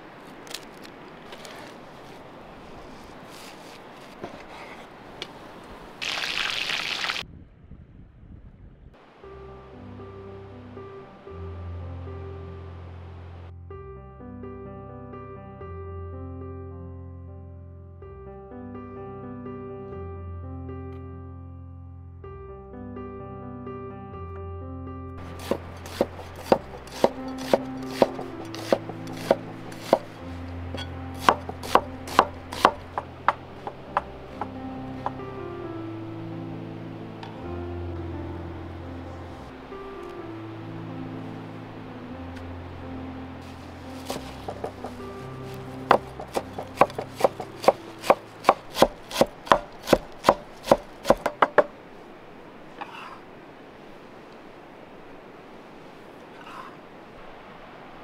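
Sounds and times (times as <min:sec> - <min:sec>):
knife slicing onion on board: 0:25.2 - 0:30.2, 0:30.8 - 0:33.8, 0:44.1 - 0:45.0, 0:45.9 - 0:51.7.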